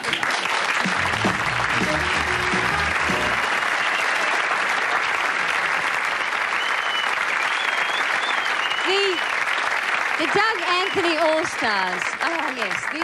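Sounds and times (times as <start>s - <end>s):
audience applauding: 0.0s - 13.0s.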